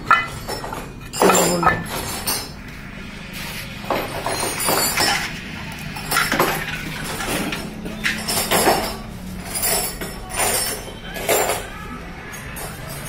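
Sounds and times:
metal tools clinking: 0.0s - 2.7s, 3.9s - 13.0s.

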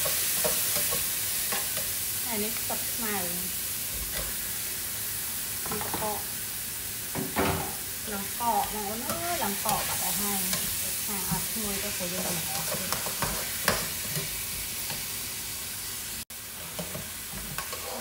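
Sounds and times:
noodles sizzling in frying pan: 0.0s - 18.0s
spatula scraping pan: 8.5s - 15.0s, 16.5s - 18.0s.

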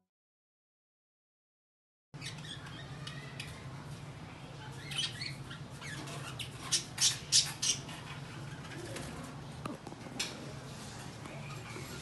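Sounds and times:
budgerigars chirping: 4.8s - 8.0s.

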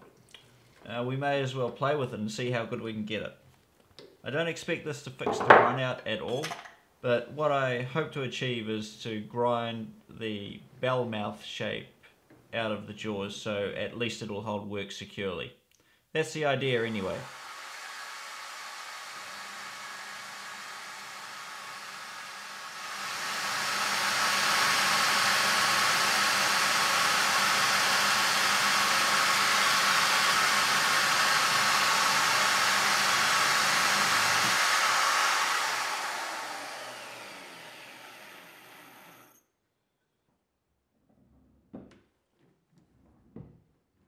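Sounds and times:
electric grinder grinding metal: 17.0s - 39.3s.

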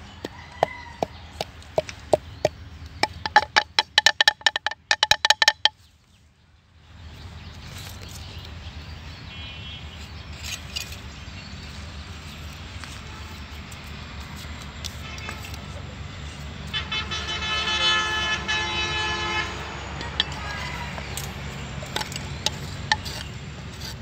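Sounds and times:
bird chirp: 0.0s - 13.4s
outdoor background noise: 0.0s - 24.0s.

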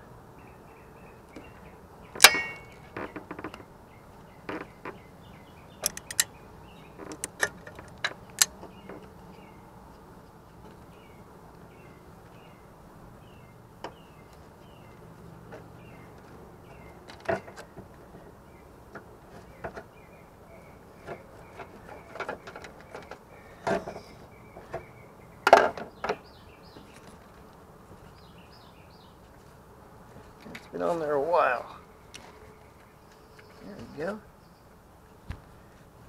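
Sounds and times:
metal hand tools clicking: 5.8s - 6.3s.

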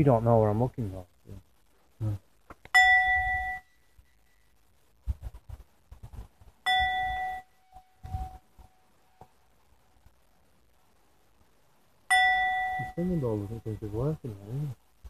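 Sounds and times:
singing bowl ringing: 2.8s - 3.8s, 6.6s - 8.5s, 12.1s - 13.2s.

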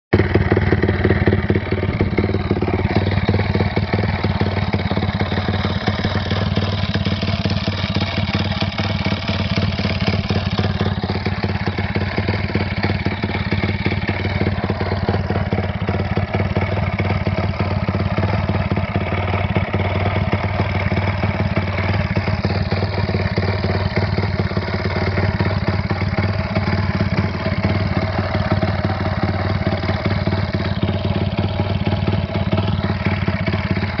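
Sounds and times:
motorcycle engine idling: 0.1s - 34.0s.

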